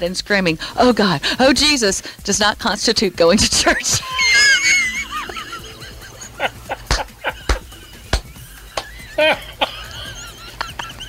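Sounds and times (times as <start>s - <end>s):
person laughing hard: 3.6s - 11.0s.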